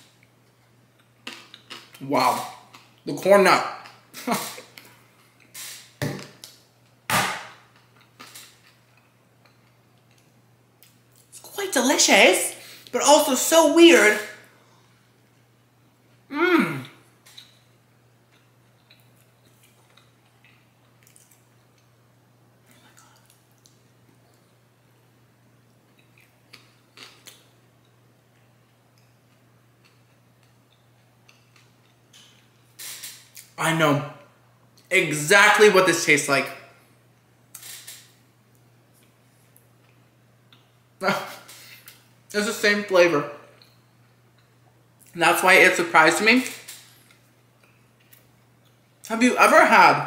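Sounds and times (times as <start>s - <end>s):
soft mouth clicks chewing: 17.2s - 17.7s, 18.3s - 22.0s, 22.7s - 24.6s, 25.7s - 32.5s.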